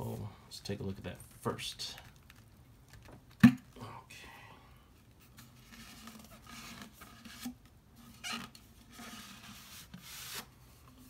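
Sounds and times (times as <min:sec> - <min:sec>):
paper and cardboard tube rustling: 0:05.1 - 0:11.0.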